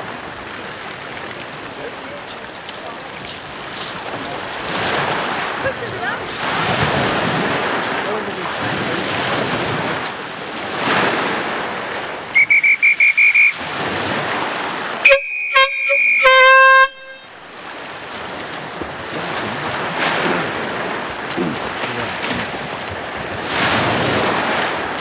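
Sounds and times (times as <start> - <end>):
surf: 0.0 - 25.0
high beeps: 12.4 - 13.6, 15.1 - 17.3
horn blasts: 12.4 - 13.6, 15.0 - 17.4
wind noise on microphone: 18.1 - 25.0.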